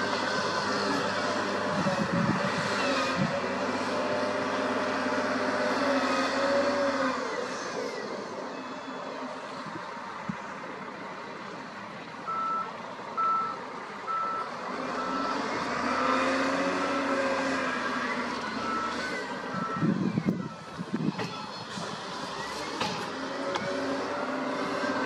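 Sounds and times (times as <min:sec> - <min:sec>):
diesel engine revving: 0:00.0 - 0:25.0
reversing alarm beeping: 0:12.3 - 0:16.4, 0:18.2 - 0:20.7.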